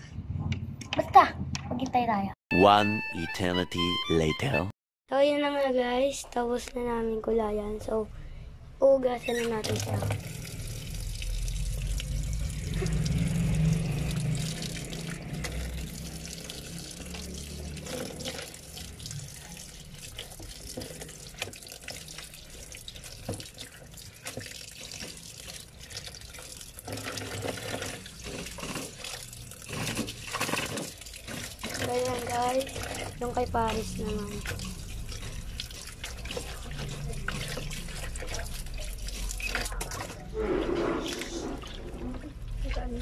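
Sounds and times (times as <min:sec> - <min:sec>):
wet fabric squeezed in water: 0:09.3 - 0:42.9
water sloshing and splashing: 0:09.3 - 0:43.0.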